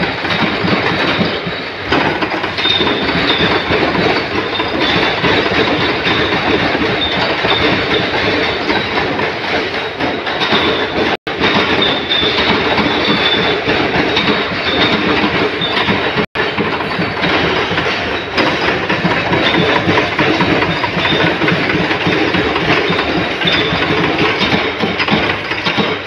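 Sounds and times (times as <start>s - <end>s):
punch presses clattering: 0.0s - 26.0s.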